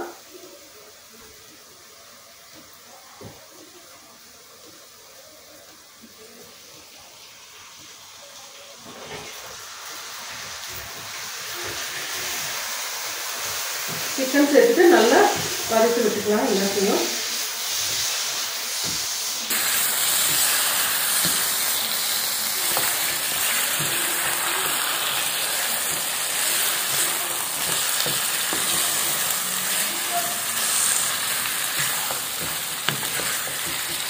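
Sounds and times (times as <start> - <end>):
chicken sizzling in oil: 0.0 - 34.0
spatula scraping a pan: 22.7 - 34.0.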